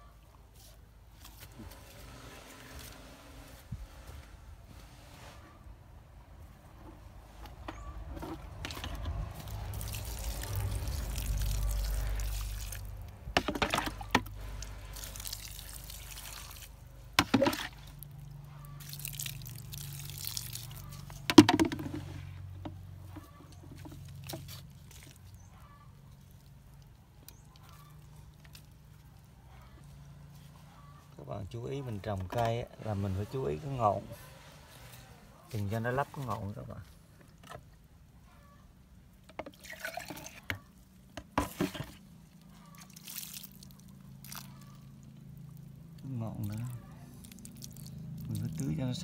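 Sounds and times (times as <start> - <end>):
water pouring onto soil: 8.4 - 22.3, 23.8 - 29.3, 39.5 - 49.0.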